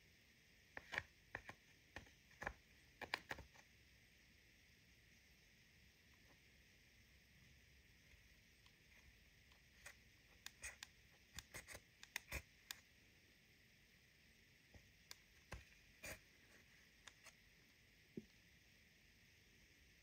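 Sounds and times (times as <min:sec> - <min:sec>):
spatula clicking and scraping plastic: 0:00.8 - 0:03.6, 0:09.5 - 0:12.8.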